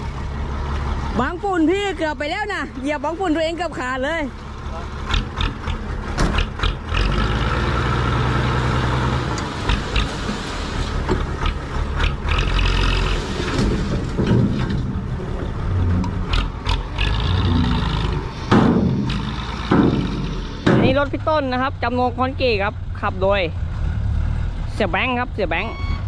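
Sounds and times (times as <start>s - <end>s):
truck engine running: 0.0s - 25.9s
soil being dumped: 7.7s - 11.4s, 12.3s - 16.2s.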